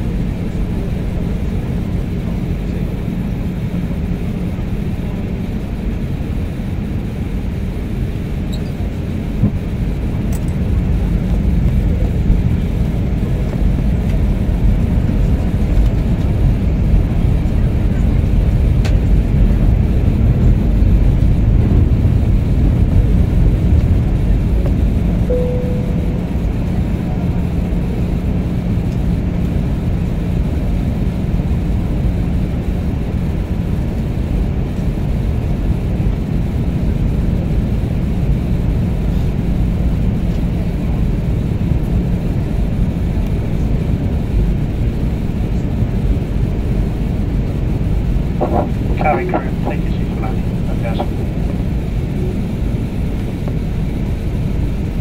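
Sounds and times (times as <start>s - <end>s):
airliner cabin rumble: 0.0s - 55.0s
short cabin tone: 25.2s - 27.4s.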